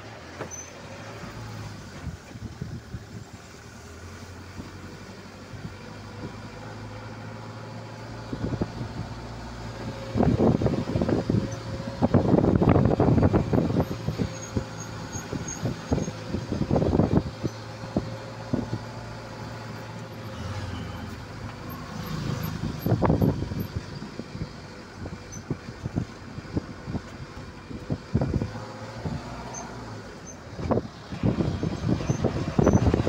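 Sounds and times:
vehicle rumble on rough road: 0.0s - 33.0s.

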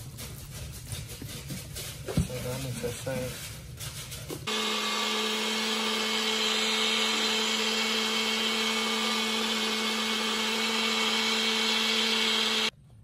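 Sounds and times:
blender motor whirring: 4.5s - 12.8s.

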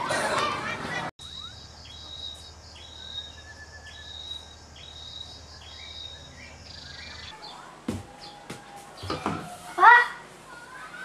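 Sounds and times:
high-pitched chirping call: 1.2s - 7.4s.

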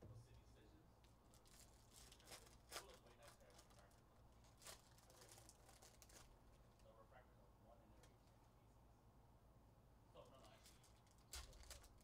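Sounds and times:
foil pack crinkling and tearing: 1.3s - 6.4s, 10.6s - 12.0s.

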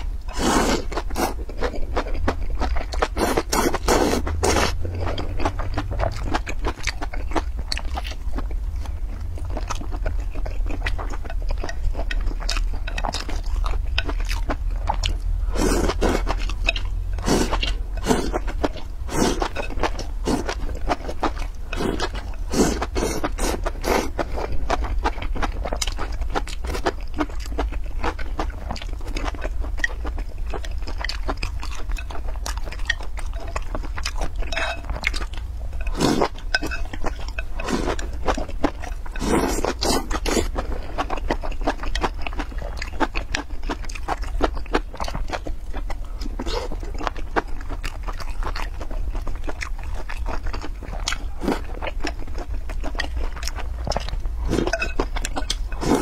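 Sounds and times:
low hum: 0.0s - 26.7s
slurping: 0.3s - 2.0s, 3.0s - 6.0s, 15.5s - 24.7s, 35.8s - 38.2s, 39.1s - 41.0s, 53.4s - 56.0s
wet chewing: 0.3s - 56.0s.

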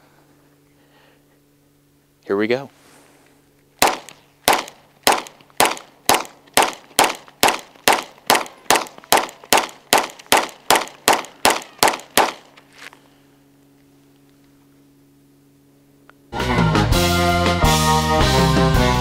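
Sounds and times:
pistol shots: 3.8s - 12.5s.

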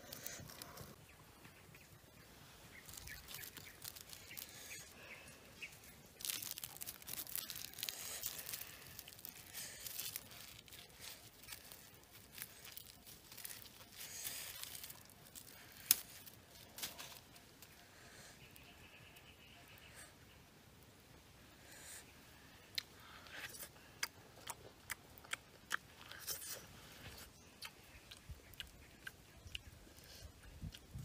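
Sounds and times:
corn husks crackling and rustling: 0.0s - 19.3s
husk snapping: 6.2s - 17.2s.

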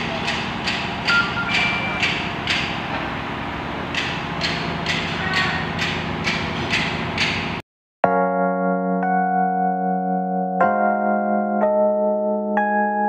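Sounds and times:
boring machine running: 0.0s - 7.6s
keyboard music with held notes: 8.0s - 13.0s.

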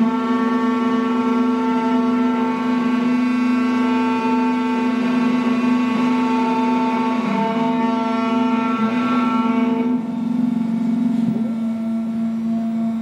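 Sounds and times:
key cutting machine whine: 0.0s - 13.0s.

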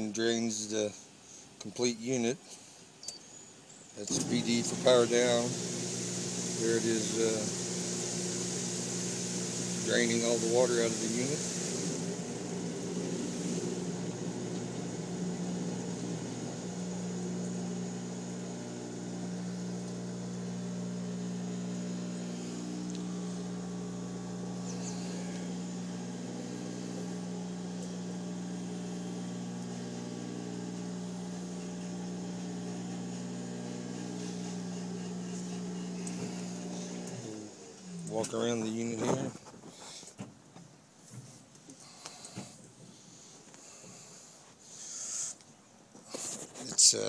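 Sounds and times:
water draining through hose: 4.0s - 37.3s
dishwasher motor hum: 4.1s - 38.7s.

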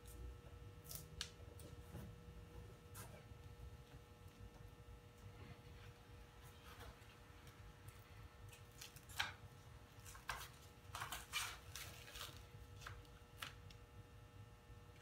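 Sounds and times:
crackling paper rustles: 10.0s - 13.7s.

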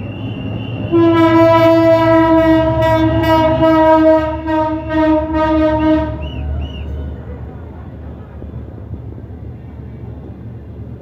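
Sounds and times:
passing train rumble: 0.0s - 11.0s
locomotive horn blast: 0.2s - 7.2s.

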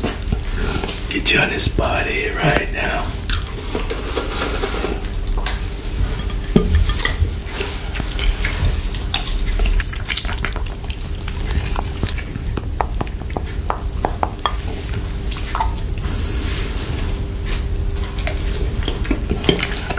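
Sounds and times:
wet mouth licking sounds: 8.0s - 17.6s.

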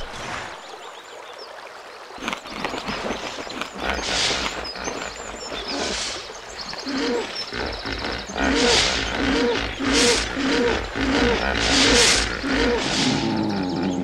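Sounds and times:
birds chirping: 2.2s - 14.0s
animal roars: 3.8s - 14.0s.

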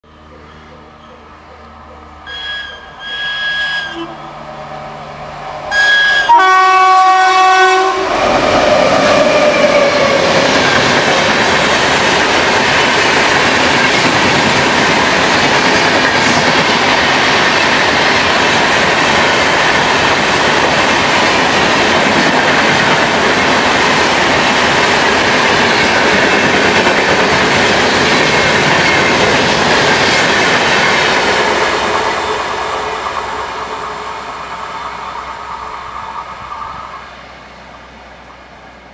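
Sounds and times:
locomotive horn: 0.6s - 8.2s
train wheels clattering over rails: 8.0s - 33.5s.

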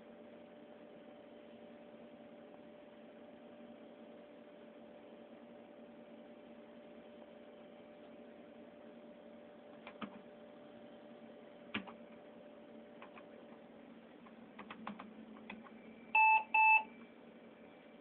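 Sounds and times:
short electronic beeps: 16.2s - 16.9s.

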